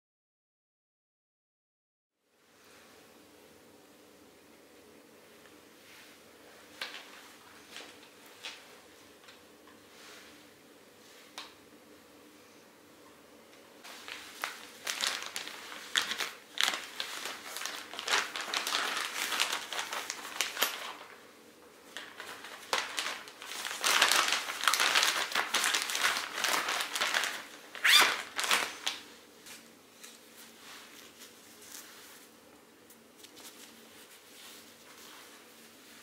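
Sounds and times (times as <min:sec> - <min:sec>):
plastic bag crinkling: 0:13.9 - 0:21.2, 0:21.8 - 0:30.1.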